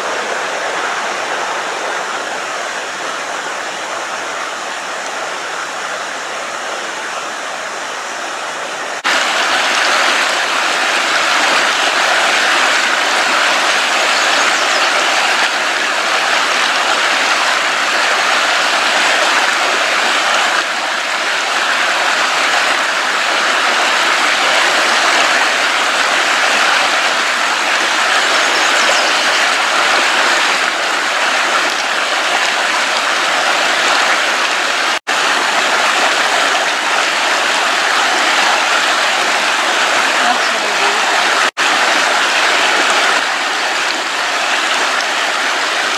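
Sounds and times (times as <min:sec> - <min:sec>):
creek water rushing: 0:00.0 - 0:45.9.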